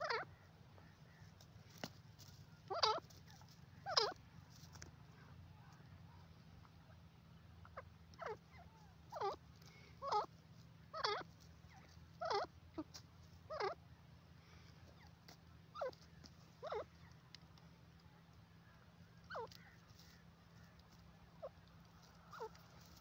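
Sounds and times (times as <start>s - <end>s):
francolin calling: 0.0s - 1.3s, 2.5s - 4.2s, 7.6s - 17.2s, 18.7s - 23.0s.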